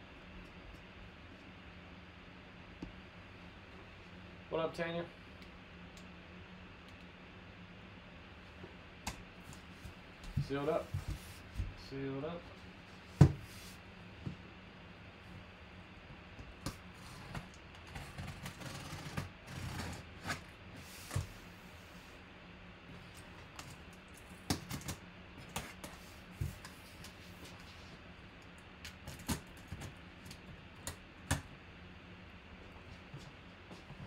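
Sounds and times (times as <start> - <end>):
blade scraping cardboard: 17.0 - 21.4.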